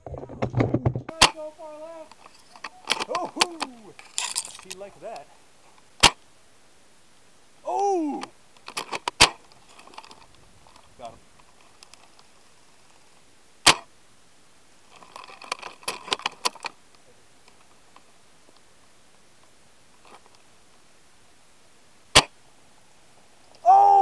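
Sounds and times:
airsoft rifle shots: 6.0 - 6.2, 9.2 - 9.4, 13.6 - 13.9, 22.1 - 22.4
loud call: 23.6 - 24.0.

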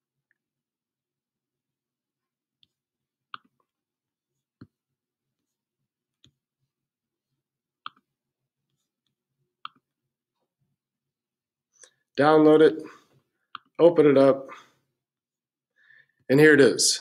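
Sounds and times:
computer mouse clicks: 7.8 - 8.0, 9.6 - 9.8.

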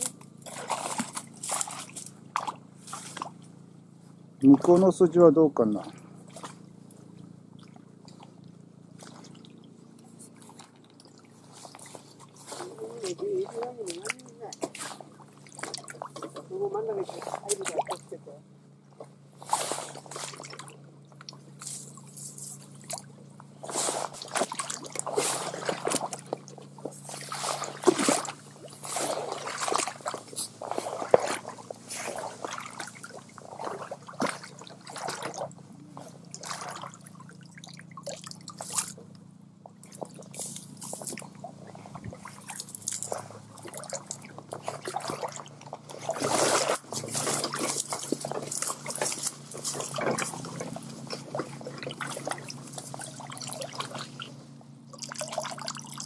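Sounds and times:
stream water splashing: 0.0 - 56.0.

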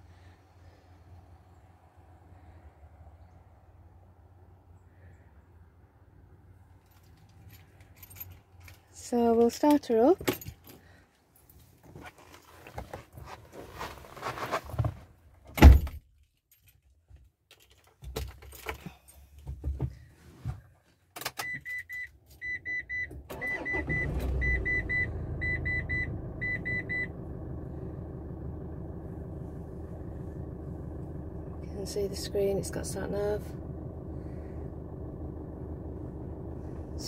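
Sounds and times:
keys jangling: 6.8 - 8.9, 10.2 - 10.8
dashboard warning chime beeping: 21.4 - 27.2
diesel engine starting and idling: 22.4 - 37.0.

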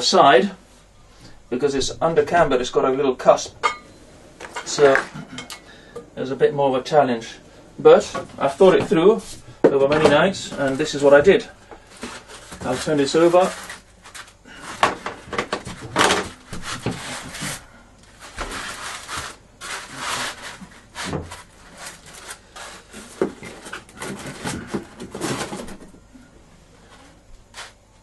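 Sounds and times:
wood scraping and knocking on workbench: 14.8 - 17.6.

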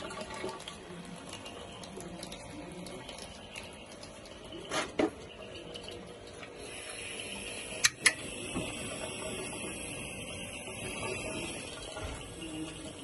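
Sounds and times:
gas burner hissing: 6.6 - 13.0
piezo igniter clicks: 7.8 - 8.2.

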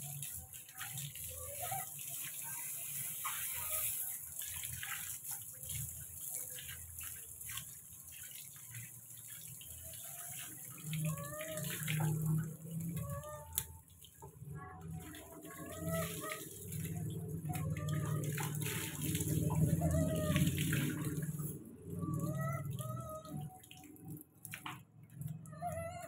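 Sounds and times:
hose water spraying: 0.0 - 7.4
water splashing on concrete: 0.0 - 26.0.

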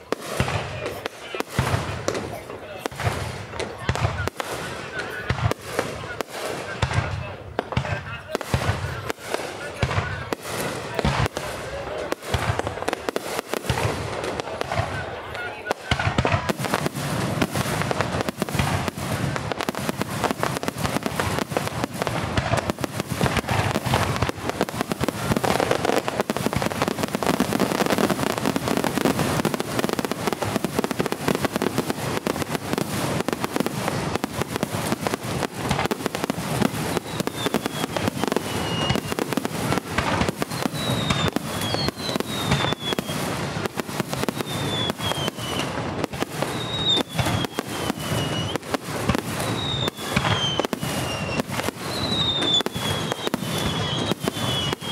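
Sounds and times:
whistling fireworks falling in pitch: 0.0 - 54.9
firework shells bursting: 16.0 - 54.9.

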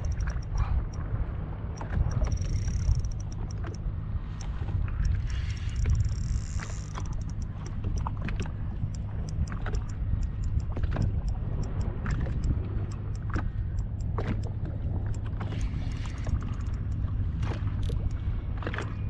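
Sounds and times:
fishing reel whirring: 0.0 - 0.6, 2.1 - 3.7, 4.4 - 7.7
fishing reel clicking: 0.0 - 0.7, 1.8 - 3.8, 4.4 - 8.1, 15.1 - 17.0
wind and water rumble: 0.0 - 19.0.

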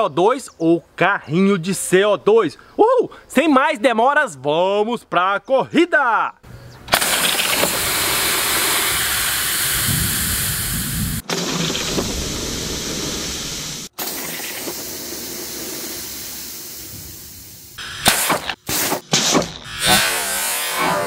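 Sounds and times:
gas cartridge hissing: 6.9 - 19.8.

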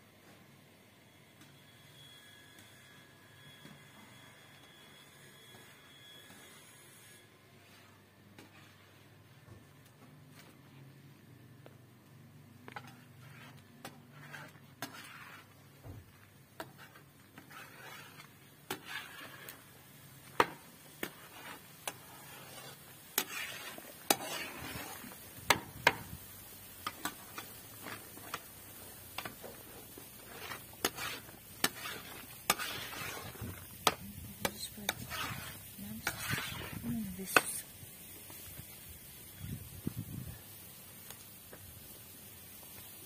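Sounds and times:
spoon scraping a pot: 12.7 - 26.1, 26.8 - 37.6.

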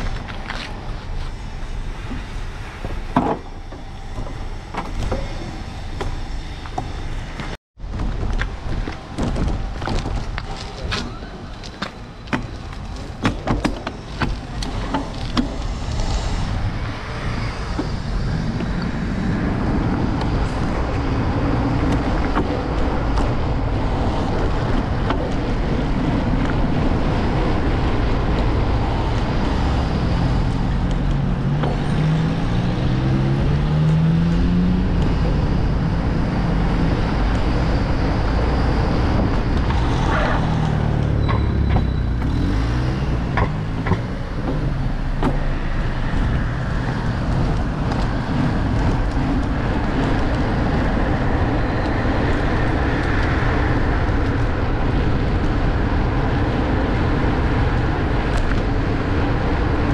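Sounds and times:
street traffic: 0.0 - 59.9
wind rumble on microphone: 0.0 - 59.9
vehicle engine rising in pitch: 26.2 - 48.7.

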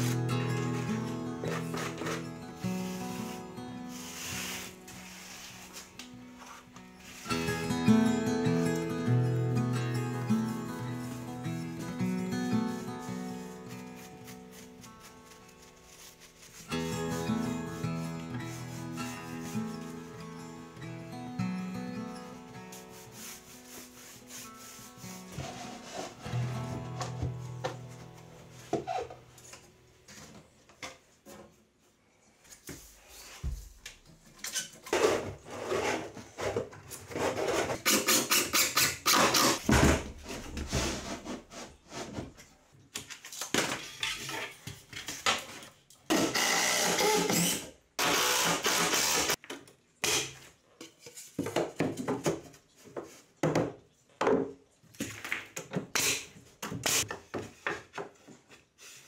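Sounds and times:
wooden knocks and scrapes: 39.6 - 42.5
steady power tool noise: 48.0 - 49.4.

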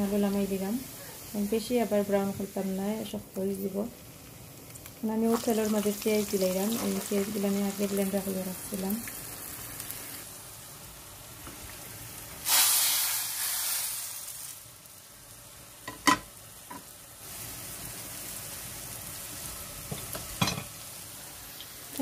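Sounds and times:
hot oil hissing and sizzling: 0.0 - 22.0
metal clink against pot: 20.4 - 20.7.

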